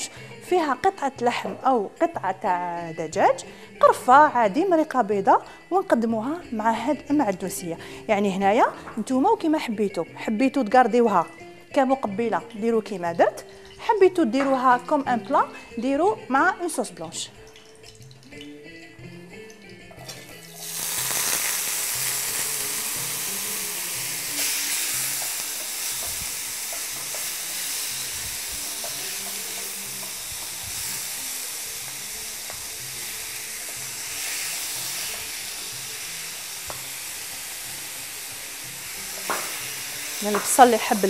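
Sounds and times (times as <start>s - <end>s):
onions sizzling in a frying pan: 20.0s - 41.0s.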